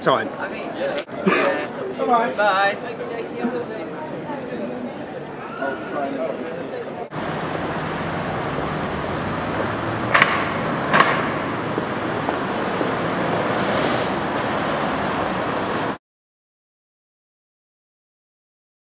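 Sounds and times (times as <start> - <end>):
cars driving past: 7.1 - 16.0
sharp clacks: 10.0 - 12.4.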